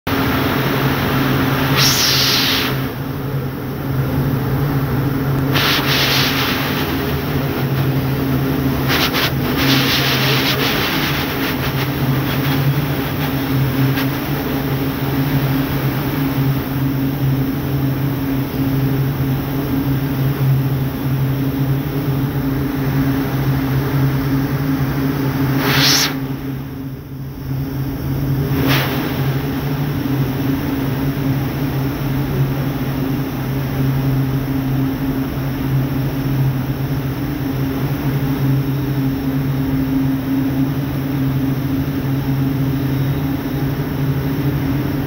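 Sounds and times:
winding machines droning: 0.1s - 45.0s
hissy swells: 1.6s - 3.0s, 5.5s - 15.2s.

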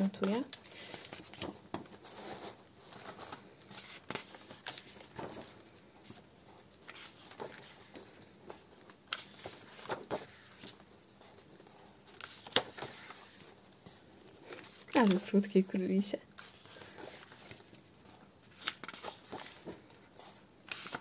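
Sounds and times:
paper rustling: 0.0s - 15.8s, 16.4s - 21.0s
pages snapping as they flip: 2.9s - 6.2s, 6.8s - 10.9s, 12.0s - 13.5s, 18.5s - 21.0s.

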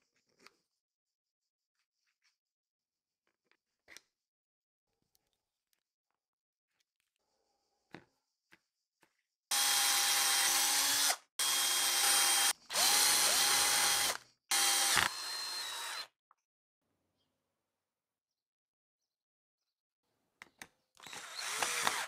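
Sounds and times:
cordless drill running: 9.5s - 16.1s, 21.0s - 22.0s.

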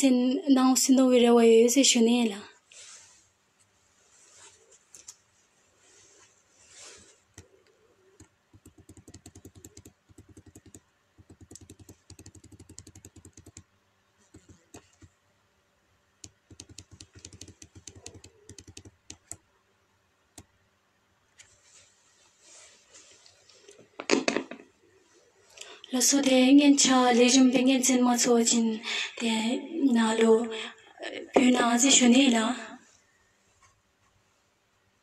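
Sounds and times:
soft rustle: 2.6s - 8.3s, 21.3s - 24.0s, 32.8s - 34.6s
faint rapid clicking: 8.2s - 15.2s, 16.2s - 19.4s.

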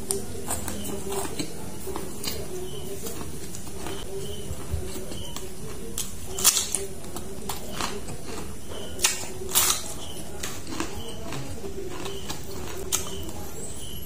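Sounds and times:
chewing: 0.0s - 14.0s
crunching bites into cucumber: 4.9s - 13.4s.

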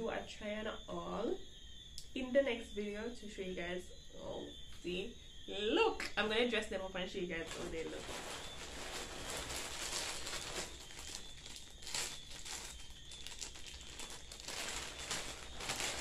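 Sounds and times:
plastic bag crinkling: 7.4s - 16.0s.

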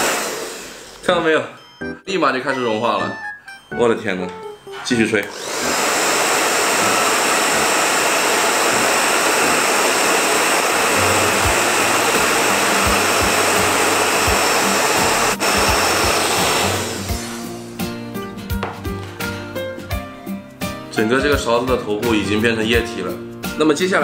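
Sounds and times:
hair dryer blowing: 0.0s - 1.0s, 5.2s - 17.7s.

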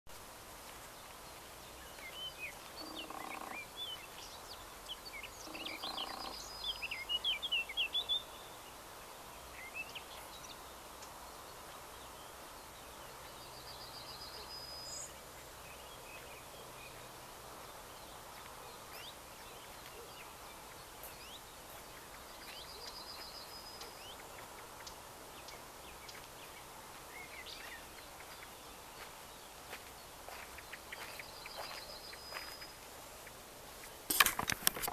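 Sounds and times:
faint background hiss: 0.1s - 34.9s
songbirds chirping and whistling: 0.9s - 34.2s
bird trilling: 2.8s - 3.7s, 5.4s - 6.5s.

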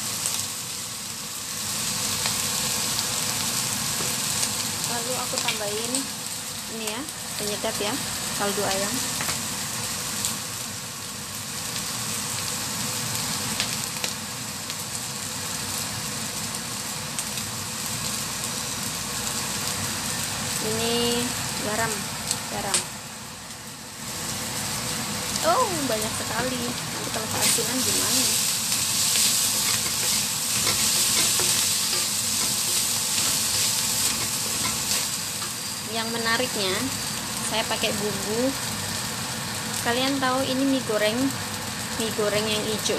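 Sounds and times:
rice sizzling in a wok: 0.0s - 42.9s.

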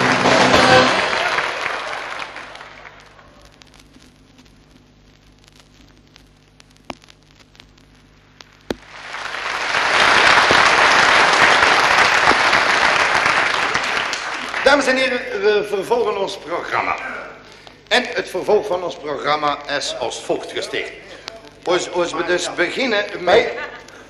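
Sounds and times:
audience applause: 0.0s - 3.5s, 8.8s - 15.3s
low hum: 2.4s - 9.2s
clicks: 3.4s - 8.9s.

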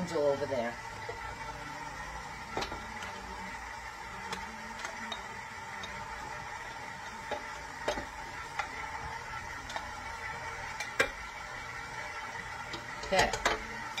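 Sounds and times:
stand mixer running: 0.0s - 14.0s.

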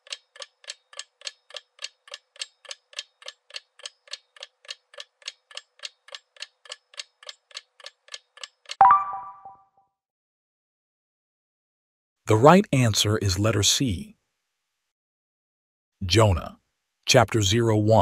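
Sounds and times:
ticking clock: 0.0s - 8.8s.

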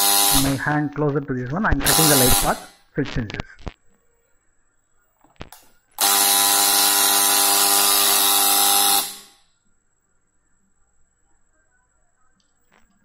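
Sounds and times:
harsh electric buzzer: 0.0s - 0.8s, 1.8s - 2.9s, 6.0s - 9.5s.

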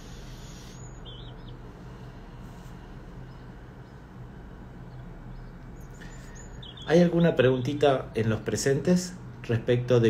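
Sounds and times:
faint hiss: 0.0s - 1.0s
steady low hum: 0.0s - 10.0s.

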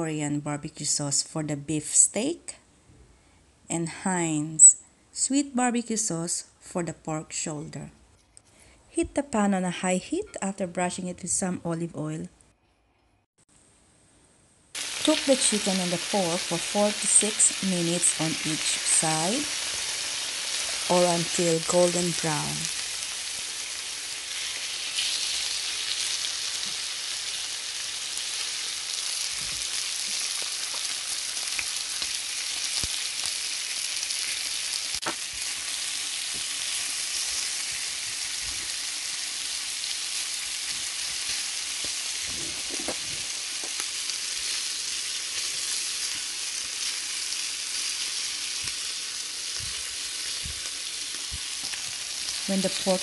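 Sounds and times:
meat sizzling in oil: 14.8s - 53.0s.

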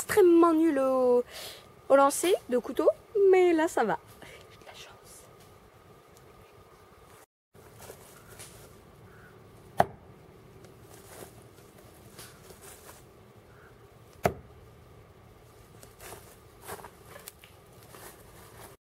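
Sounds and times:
knife striking tree trunk: 9.7s - 10.1s, 14.1s - 14.6s.

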